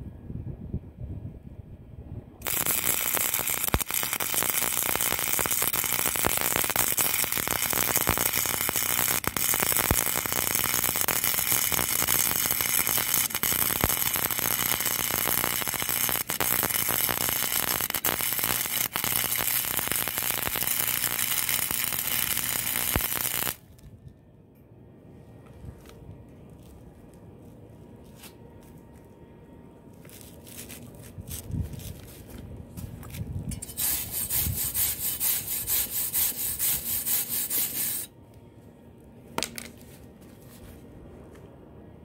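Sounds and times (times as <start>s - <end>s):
welder arc crackling: 2.4s - 23.6s, 33.5s - 38.1s.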